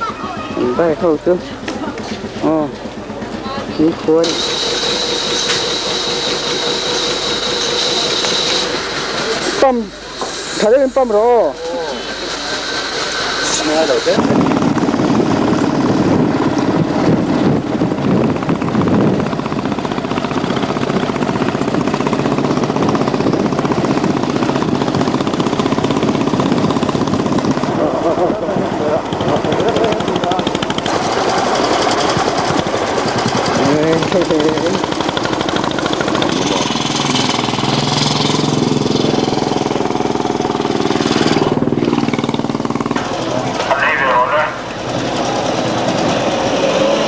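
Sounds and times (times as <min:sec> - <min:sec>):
motorcycle engine running: 0:00.0 - 0:47.0
wind rushing over microphone: 0:13.5 - 0:41.8.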